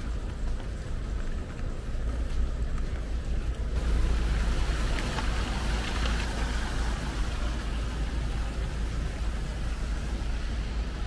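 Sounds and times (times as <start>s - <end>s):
tyres hissing on wet road: 3.8s - 11.0s.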